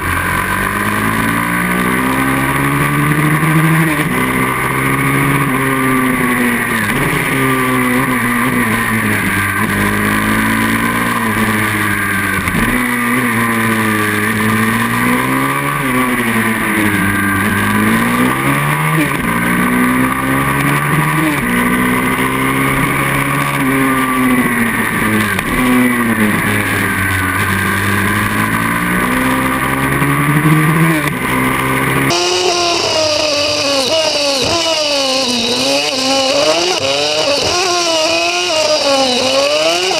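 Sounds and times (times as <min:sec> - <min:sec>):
motorbike engine revving: 0:00.0 - 0:39.9
higher wavering engine note: 0:25.3 - 0:39.9.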